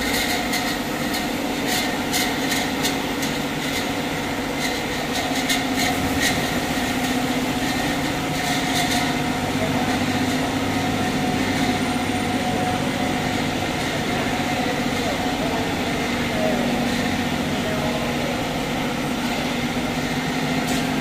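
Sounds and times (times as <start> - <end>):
machine hum: 5.7 - 21.0.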